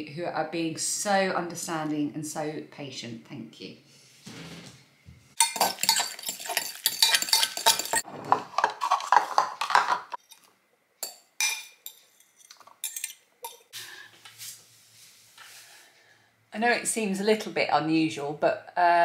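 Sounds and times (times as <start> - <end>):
spoon scraping glass bowl: 5.4 - 13.7.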